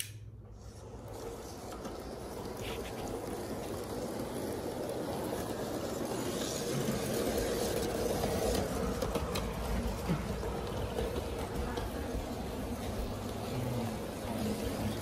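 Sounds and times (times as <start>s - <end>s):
model train motor and wheels humming: 0.0s - 15.0s.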